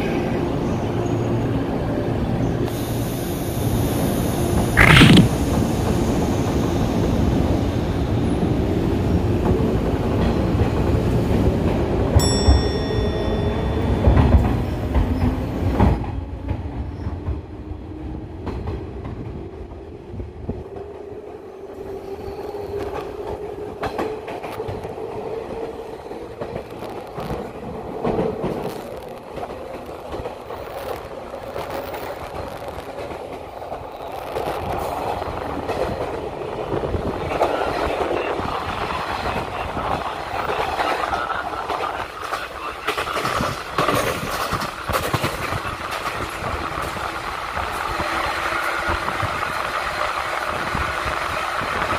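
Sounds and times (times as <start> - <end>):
rush of air: 2.8 - 6.0
train wheels clattering on rails: 8.3 - 17.5, 22.7 - 51.9.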